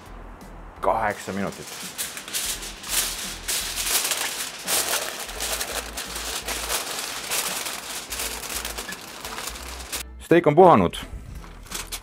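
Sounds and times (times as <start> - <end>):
aluminium foil crinkling: 1.2 - 10.0, 11.4 - 12.0.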